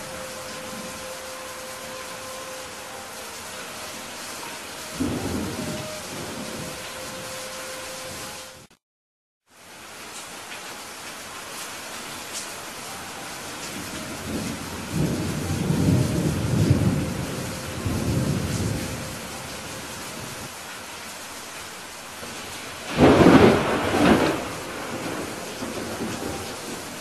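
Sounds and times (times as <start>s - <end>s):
thunder rumbling: 0.0s - 8.7s, 13.2s - 20.5s, 22.2s - 27.0s
steady rain: 0.0s - 8.8s, 9.4s - 27.0s
sharp thunderclap: 22.9s - 26.5s.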